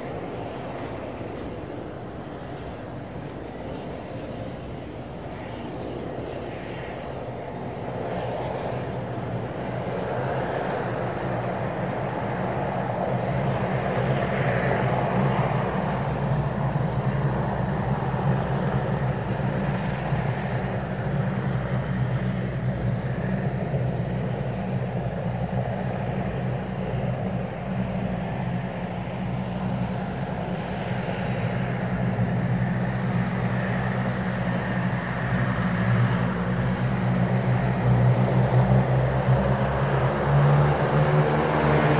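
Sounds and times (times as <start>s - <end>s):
turboprop engines droning: 0.0s - 41.9s.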